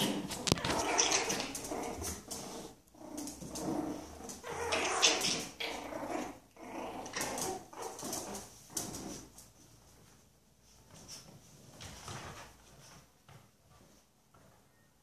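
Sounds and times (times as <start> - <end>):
dogs growling in play: 0.0 - 9.5.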